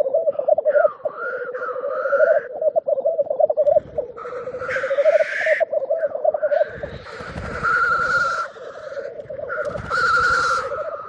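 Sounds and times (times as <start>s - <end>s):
grouse bubbling coo: 0.0s - 11.0s.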